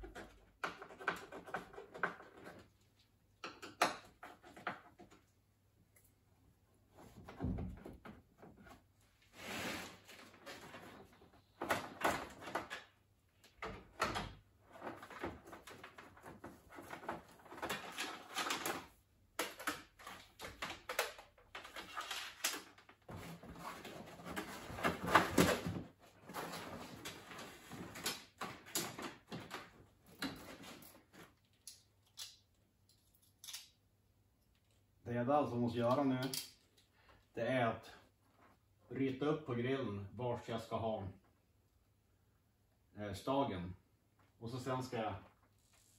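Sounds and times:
rustling and clattering of parts: 0:00.0 - 0:06.2, 0:06.8 - 0:33.8.

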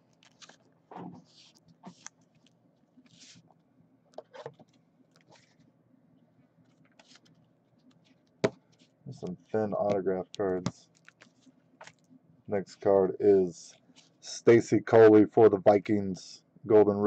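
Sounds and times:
plastic sleeve crinkling: 0:00.0 - 0:03.5, 0:06.8 - 0:12.1.

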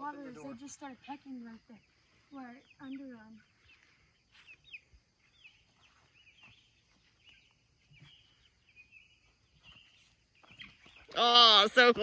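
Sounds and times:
hens chirping: 0:00.1 - 0:11.8.

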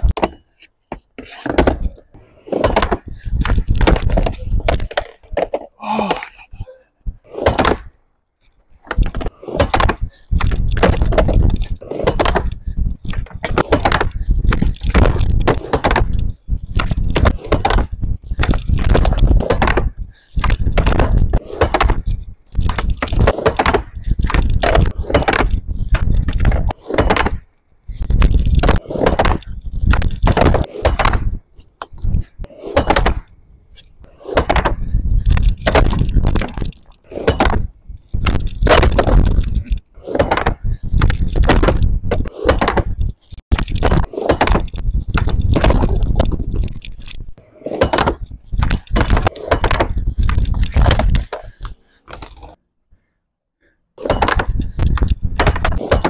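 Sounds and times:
skateboard wheels rumbling on wood: 0:01.1 - 0:05.7, 0:08.8 - 0:33.3, 0:34.0 - 0:46.6.

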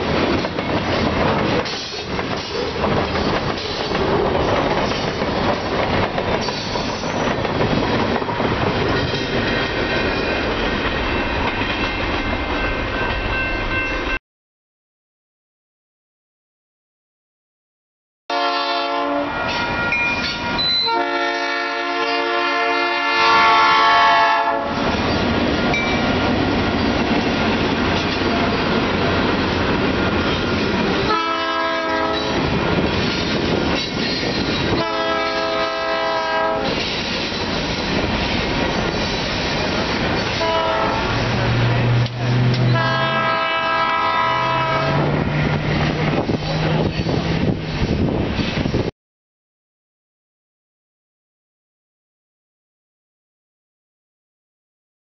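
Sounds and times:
freight cars rumbling on rails: 0:00.0 - 0:14.2, 0:23.4 - 0:48.9
locomotive air horn blasts: 0:18.3 - 0:19.9, 0:20.5 - 0:24.8, 0:31.1 - 0:32.5, 0:34.8 - 0:36.8, 0:40.4 - 0:41.3, 0:42.3 - 0:45.1.

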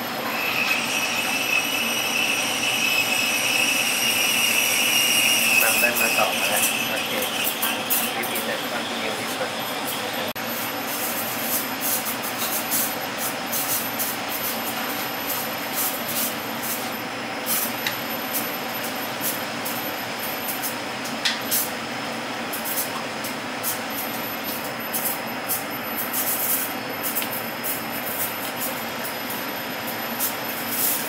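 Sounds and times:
rushing kitchen noise: 0:00.0 - 0:19.0.

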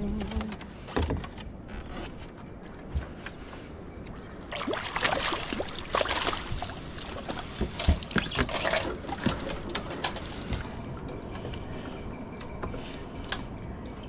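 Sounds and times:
water trickling and dripping: 0:04.0 - 0:11.5
water splashing off a landing net: 0:04.5 - 0:10.4.

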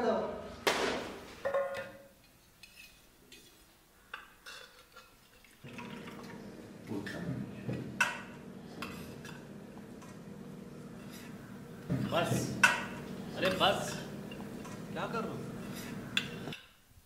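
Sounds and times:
spoon clinking on steel plates: 0:01.5 - 0:05.5, 0:12.4 - 0:14.9, 0:15.6 - 0:16.7.

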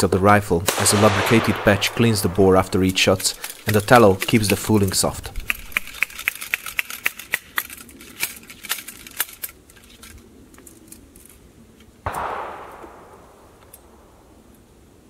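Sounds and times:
ramrod tapping in rifle bore: 0:00.8 - 0:07.7.

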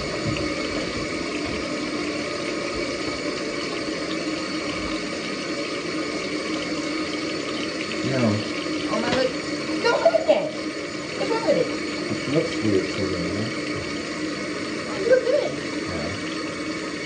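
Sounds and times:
water running from a tap: 0:00.0 - 0:17.0.

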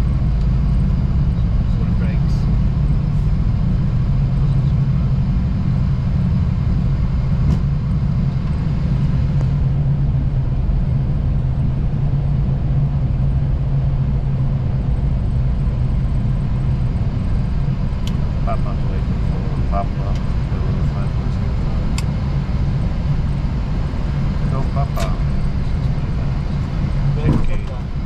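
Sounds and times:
aircraft wheels and engines rumbling: 0:00.0 - 0:28.0.

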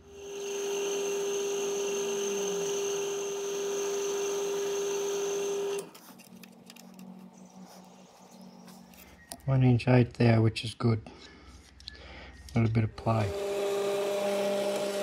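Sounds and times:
milling spindle whine: 0:00.0 - 0:09.5
faint scraping and clicks: 0:05.8 - 0:09.5.

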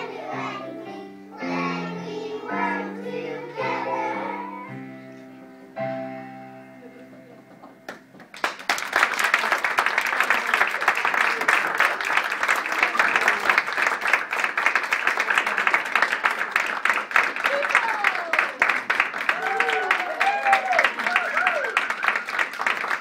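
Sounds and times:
audience applause: 0:07.9 - 0:23.0.

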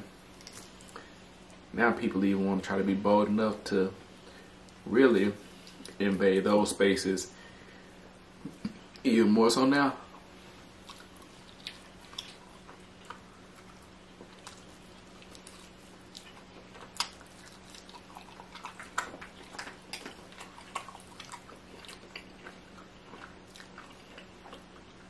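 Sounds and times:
person chewing with wet clicks: 0:00.3 - 0:01.7, 0:05.6 - 0:06.2, 0:10.0 - 0:25.0.

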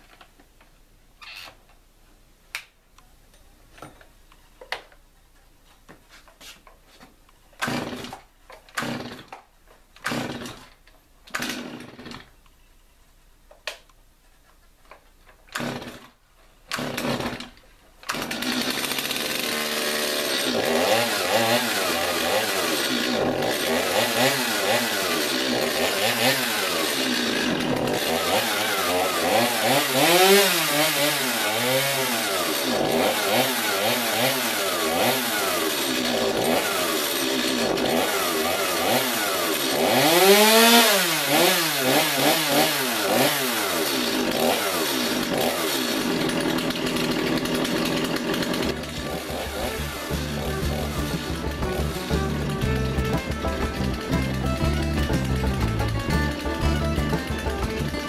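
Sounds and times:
chainsaw engine revving: 0:07.6 - 0:09.4, 0:10.0 - 0:10.7, 0:11.3 - 0:12.3, 0:15.5 - 0:58.0.

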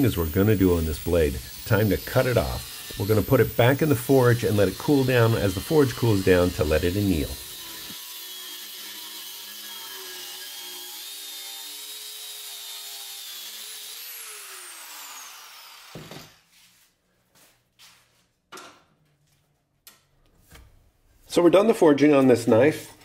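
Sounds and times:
angle grinder cutting steel: 0:00.0 - 0:16.4.

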